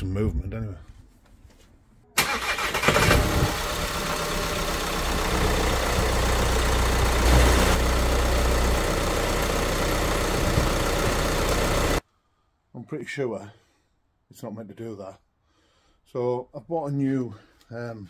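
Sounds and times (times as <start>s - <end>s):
diesel engine starting and idling: 2.2s - 12.0s.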